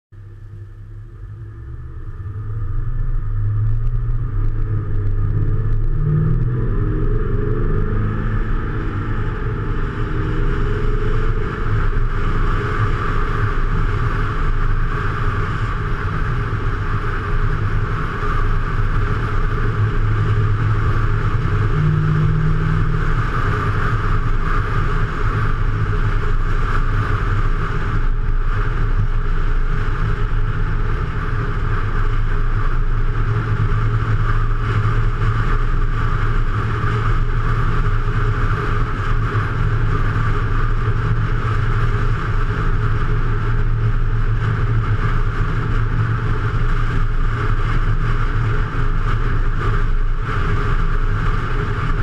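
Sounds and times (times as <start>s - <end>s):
vehicle driving on highway: 0.2s - 52.0s.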